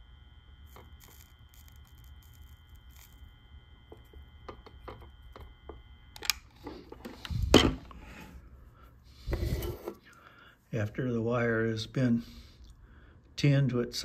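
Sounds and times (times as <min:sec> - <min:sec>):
soldering gun humming: 0:00.0 - 0:10.4.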